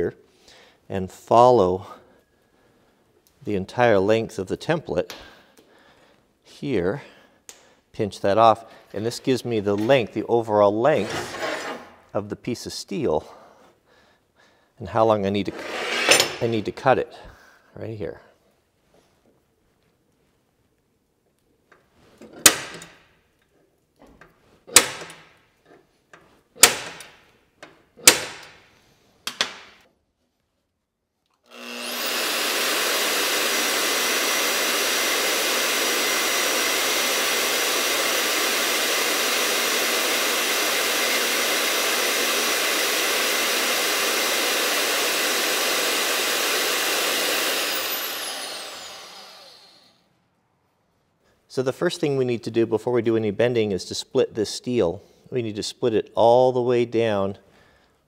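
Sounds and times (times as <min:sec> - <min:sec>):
bandsaw cutting steel: 0:10.9 - 0:11.9, 0:15.5 - 0:16.7, 0:31.5 - 0:50.0
center punch snapping: 0:22.4 - 0:23.0, 0:24.7 - 0:25.3, 0:26.6 - 0:27.2, 0:28.0 - 0:28.6.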